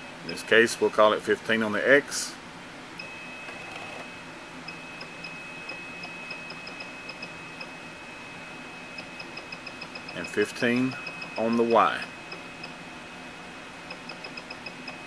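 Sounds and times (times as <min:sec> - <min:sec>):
machine high whine: 0:03.0 - 0:15.0.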